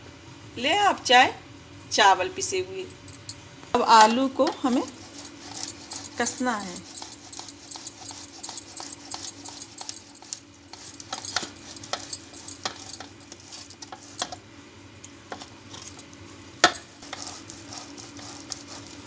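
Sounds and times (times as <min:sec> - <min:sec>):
metal grater clicking and tapping: 0:05.5 - 0:14.4.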